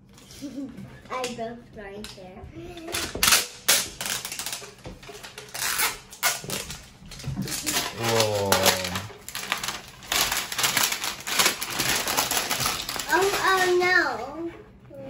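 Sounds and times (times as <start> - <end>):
child's voice: 1.1 - 3.2, 13.0 - 15.0
plastic wrapper tearing and crinkling: 2.9 - 13.9.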